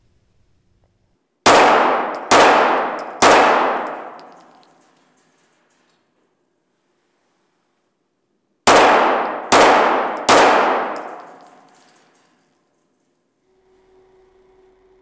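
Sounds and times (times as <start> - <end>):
pistol shots echoing indoors: 1.4 - 5.8, 8.6 - 12.6.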